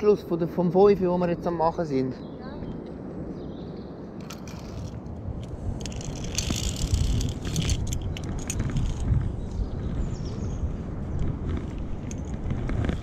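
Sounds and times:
wind rumble on microphone: 0.0s - 13.0s
carabiners clinking on steel cable: 4.2s - 9.2s, 12.0s - 13.0s.

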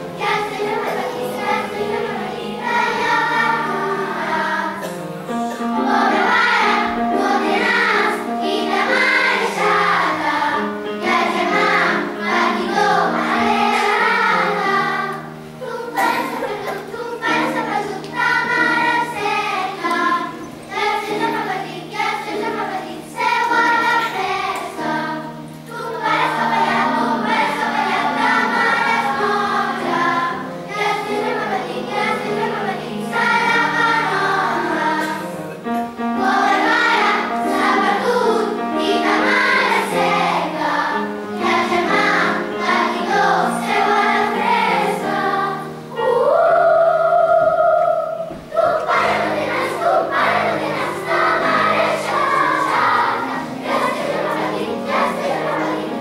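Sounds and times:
children's choir singing: 0.0s - 56.0s
piano accompaniment: 0.0s - 56.0s.

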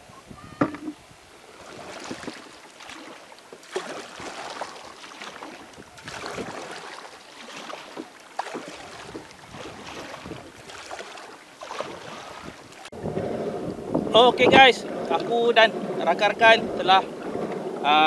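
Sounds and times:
kayak paddle splashing: 0.4s - 18.0s
water dripping off paddle: 1.9s - 13.0s.

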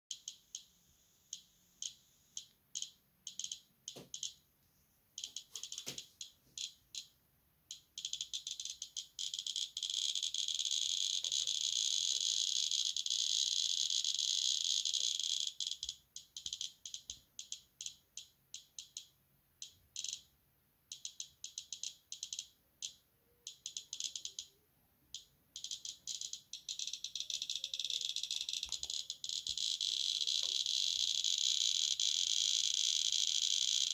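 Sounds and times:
radiation detector clicking: 1.3s - 4.4s, 5.2s - 7.1s, 7.7s - 13.0s, 25.2s - 33.9s.

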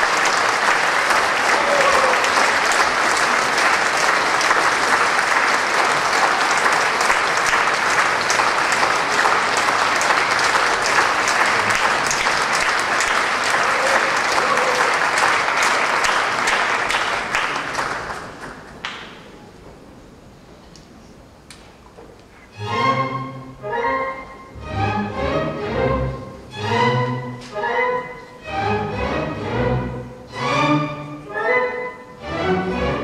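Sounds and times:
audience applauding: 0.0s - 19.3s.

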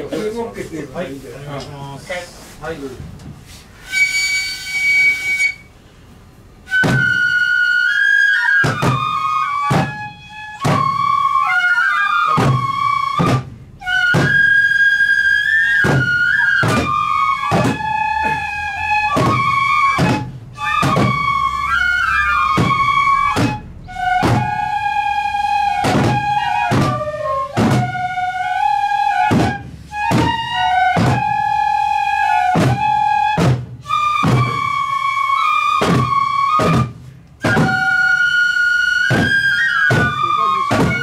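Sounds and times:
bamboo flute melody: 3.5s - 5.9s, 6.5s - 41.0s
steady drum strokes: 15.7s - 31.5s, 32.3s - 35.0s.

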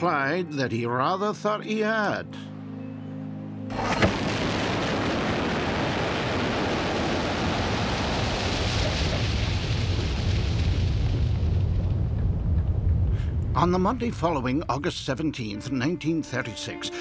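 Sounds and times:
falling debris: 3.7s - 12.9s
quarry blast rumble: 3.7s - 15.0s.

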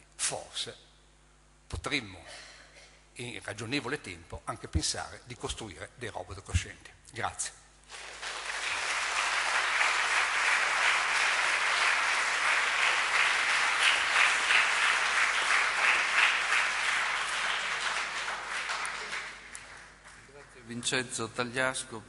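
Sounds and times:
audience applauding: 7.9s - 20.5s.

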